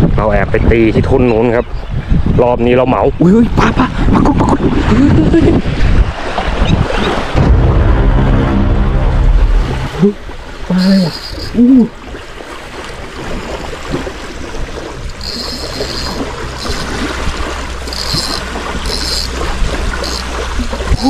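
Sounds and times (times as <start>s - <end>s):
wind buffeting microphone: 0.0s - 8.0s, 9.3s - 21.0s
small waves lapping shore: 4.0s - 7.4s, 9.4s - 21.0s
fishing reel whirring: 10.7s - 11.7s, 14.2s - 21.0s.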